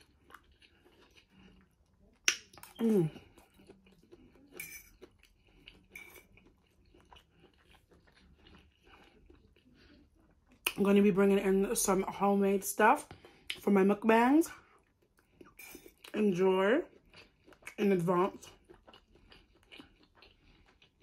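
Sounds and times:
chewing with mouth closed: 0.0s - 10.8s, 14.6s - 16.2s, 16.8s - 21.0s.

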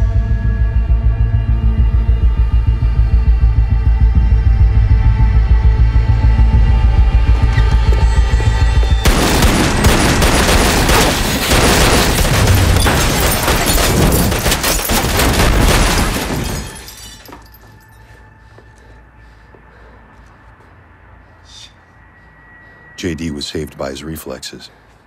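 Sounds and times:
pulsing tense music: 0.0s - 25.0s
gunfire volley: 9.1s - 16.1s.

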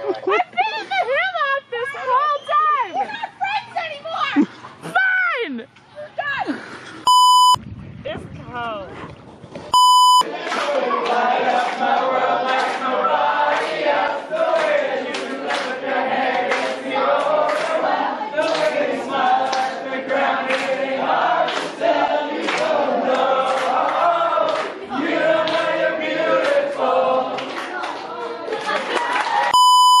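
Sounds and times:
male voices singing together: 10.2s - 27.8s.

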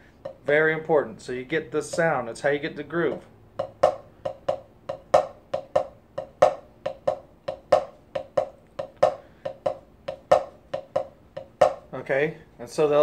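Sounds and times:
drumstick on practice pad: 0.0s - 12.2s.

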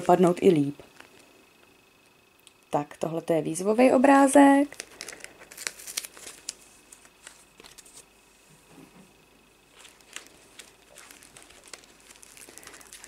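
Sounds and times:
paper pages rustling: 4.7s - 8.1s, 9.7s - 13.0s.

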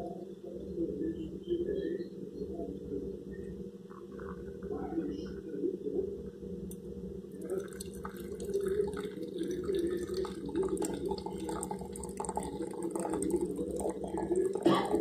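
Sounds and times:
steady low hum: 0.0s - 15.0s
water pouring onto coffee: 7.4s - 15.0s.

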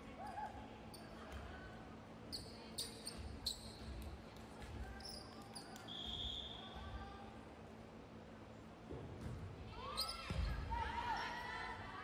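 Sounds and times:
sneakers squeaking on wooden court: 2.3s - 3.9s
referee's whistle: 5.9s - 6.6s.

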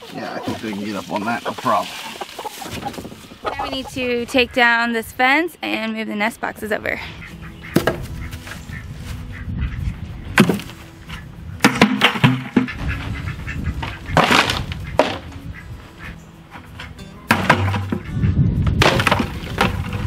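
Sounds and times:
ducks quacking: 0.0s - 5.1s, 6.4s - 10.3s, 12.2s - 18.4s
plastic crates clattering on ground: 0.1s - 3.2s, 10.4s - 10.8s, 11.6s - 15.4s, 16.8s - 18.1s, 18.7s - 20.0s.

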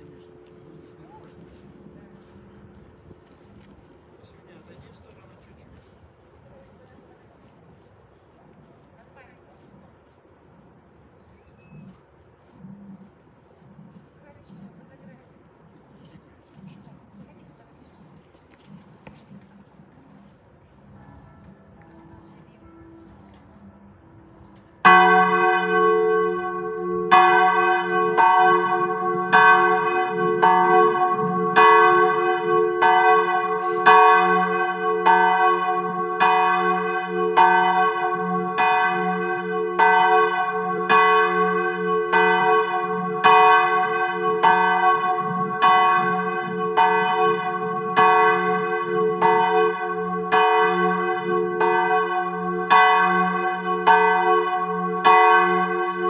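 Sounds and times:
large church bell ringing: 20.9s - 56.0s.

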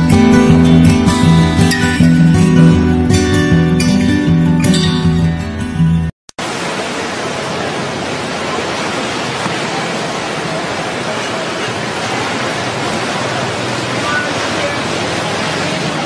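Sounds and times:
river floodwater rushing: 6.4s - 16.0s.

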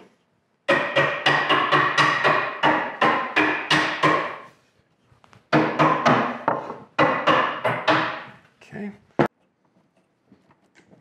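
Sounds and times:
wooden mallet knocking wood: 0.7s - 4.5s, 5.5s - 8.4s.

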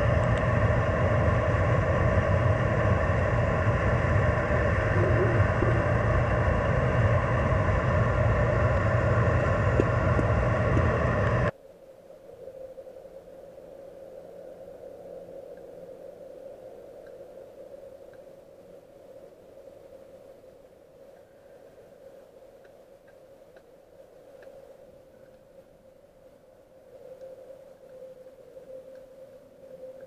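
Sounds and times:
mechanical drone underwater: 0.0s - 11.5s, 12.3s - 30.0s
faint hiss: 11.5s - 30.0s.

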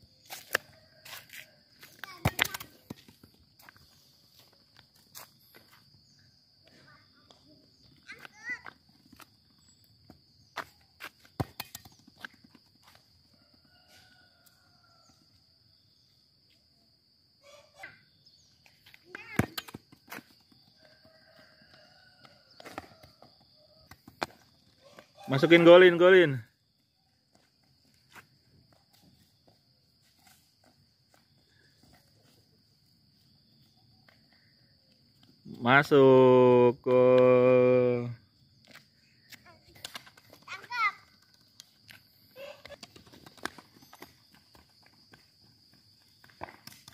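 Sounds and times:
faint insect chorus: 0.0s - 46.9s
footsteps and taps on concrete: 38.6s - 46.9s.

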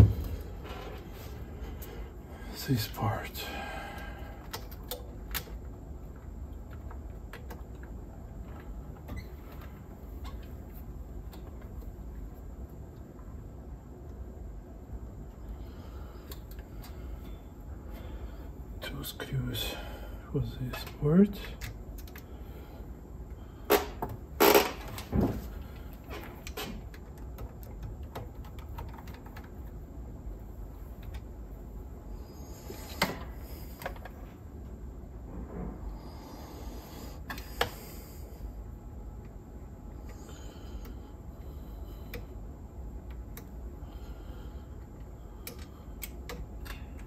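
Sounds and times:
low steady hum: 0.0s - 47.0s.

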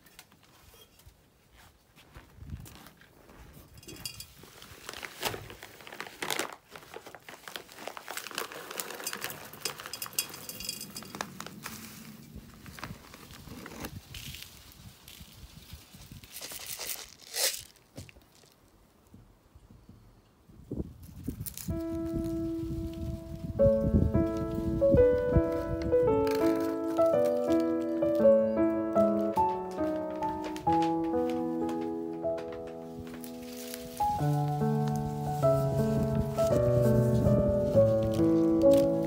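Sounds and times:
bag of soil rustling: 1.4s - 18.8s, 21.0s - 39.0s
soil pouring into clay pot: 8.0s - 12.0s.

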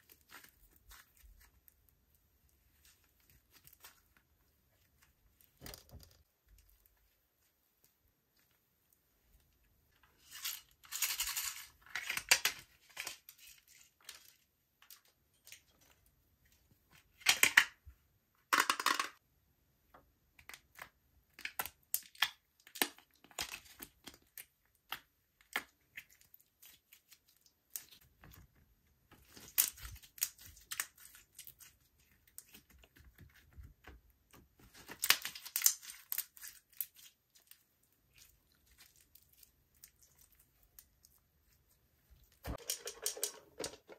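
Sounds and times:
slime crackling and popping: 34.8s - 41.2s.

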